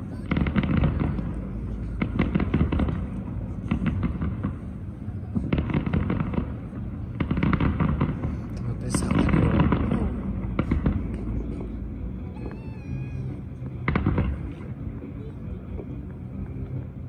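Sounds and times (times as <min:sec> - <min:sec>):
fireworks bangs and crackles: 0:00.0 - 0:17.0.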